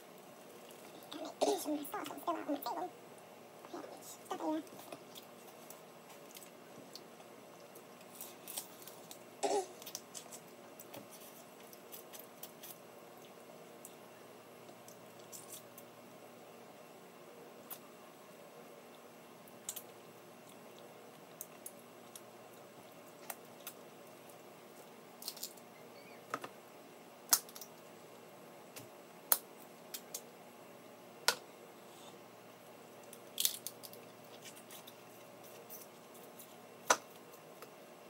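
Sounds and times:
crab shells cracking and snapping: 25.2s - 25.7s, 27.3s - 27.8s, 29.3s - 30.3s, 33.0s - 37.7s.

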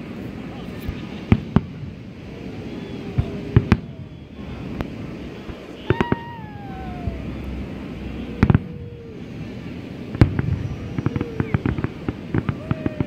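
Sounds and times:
crackling firework bursts: 0.0s - 13.0s.

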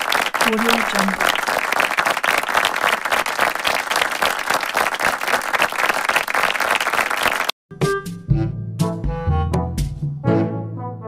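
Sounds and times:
crowd applauding: 0.0s - 7.6s.

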